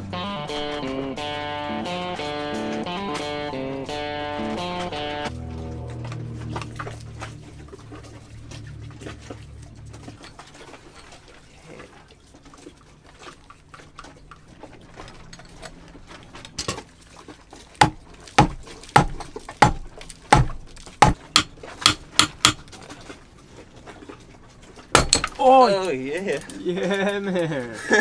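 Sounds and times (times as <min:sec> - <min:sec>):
rubber mallet striking wood: 0:17.8 - 0:22.6, 0:25.0 - 0:25.3.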